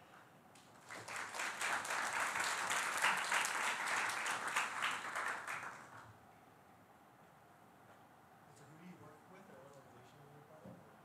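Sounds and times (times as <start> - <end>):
audience applauding: 0.8 - 6.1.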